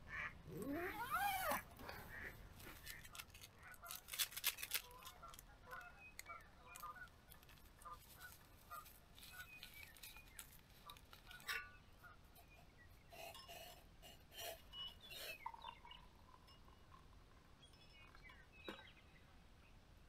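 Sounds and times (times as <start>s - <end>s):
metal camp cup clinking: 9.2s - 17.0s.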